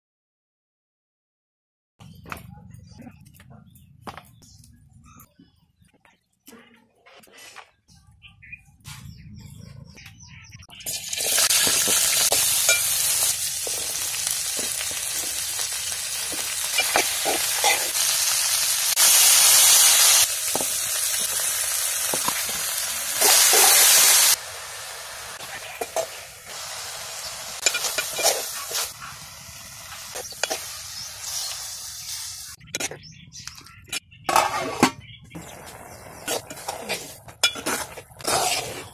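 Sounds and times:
vegetables sizzling in pot: 10.9s - 32.6s.

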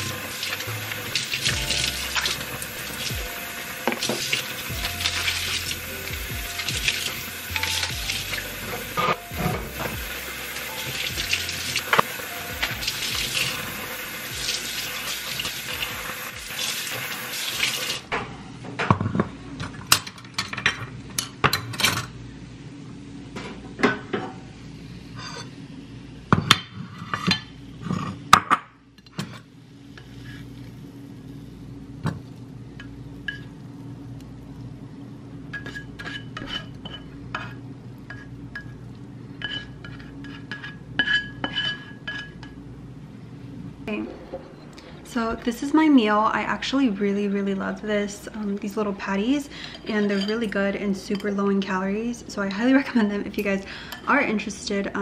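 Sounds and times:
dishes being scrubbed: 3.8s - 13.8s, 35.5s - 38.7s, 39.4s - 42.4s
faint steady hum: 28.7s - 55.0s
spatula scraping frying pan: 35.6s - 38.3s, 39.4s - 42.4s.

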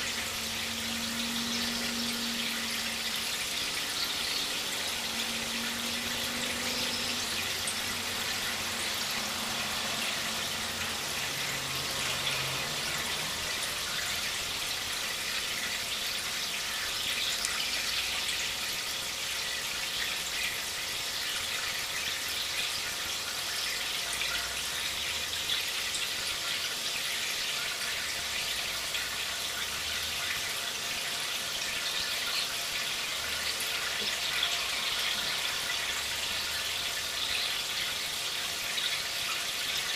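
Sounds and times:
aquarium water trickling: 0.0s - 39.9s.

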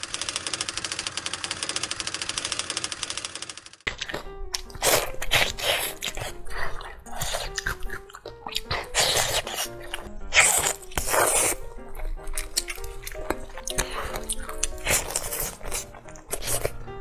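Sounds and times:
chewing sticky meat: 3.9s - 17.0s
simple background music: 3.9s - 17.0s.

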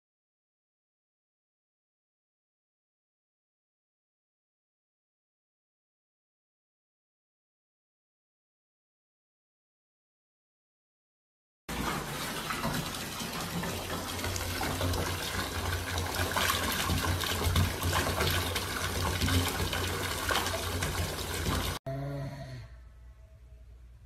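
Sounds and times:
bath tap water pouring: 11.7s - 21.8s.

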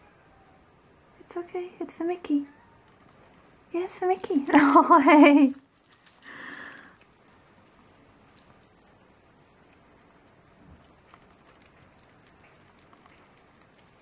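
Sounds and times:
small dog paws clicking on wood: 8.3s - 14.0s.

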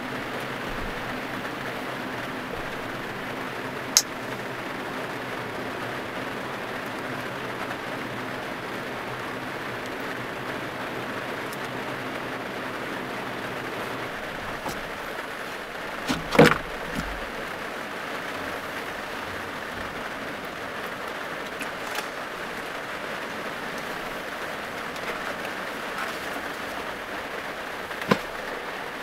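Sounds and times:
rain on a van roof: 0.0s - 29.0s
wooden panel knocks: 16.0s - 17.4s.

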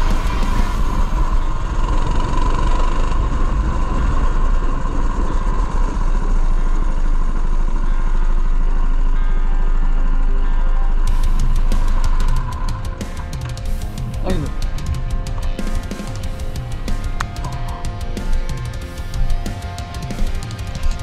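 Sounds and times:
small petrol engine running: 0.0s - 21.0s
wind and road noise: 0.0s - 21.0s.

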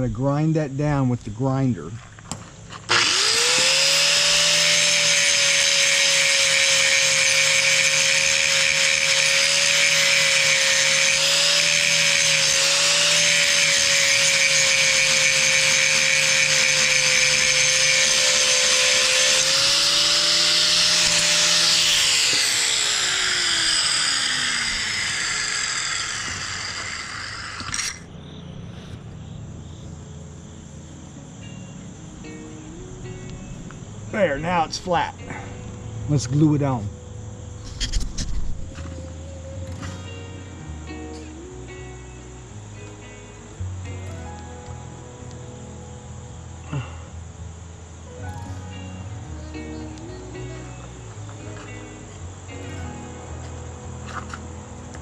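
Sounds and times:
angle grinder motor whine: 2.7s - 28.9s, 30.4s - 43.2s
grinding on fiberglass: 2.8s - 28.1s.

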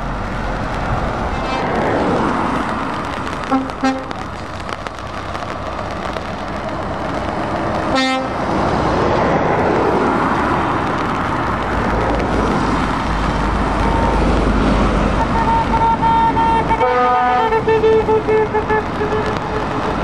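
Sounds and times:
deep truck engine drone: 0.0s - 20.0s
trucks driving past on wet road: 0.0s - 20.0s
truck horn toot: 3.5s - 4.1s, 7.9s - 8.3s, 15.2s - 19.9s.

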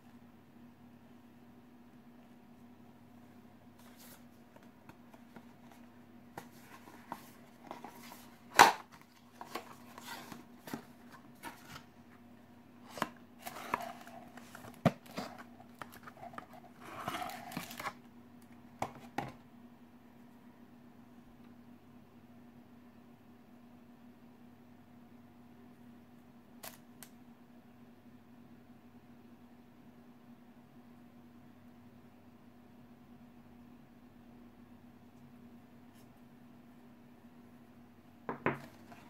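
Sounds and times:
cardboard and paper rustling: 3.7s - 12.2s, 12.8s - 18.0s.

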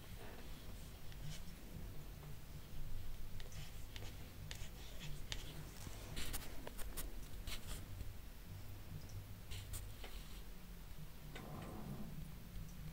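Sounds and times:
faint low hum: 0.0s - 12.9s
marker drawing on paper: 3.4s - 7.8s.

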